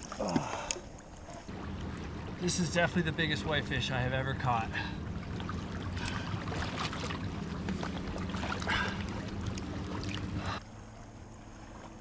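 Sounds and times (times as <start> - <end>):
flowing water rushing: 0.0 - 12.0
water splashing around a net: 4.7 - 10.6.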